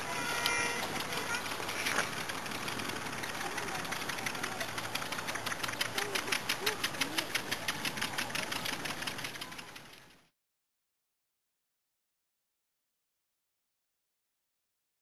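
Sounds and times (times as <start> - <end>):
faint distant voices: 0.0 - 10.3
small engine knocking: 0.0 - 10.3.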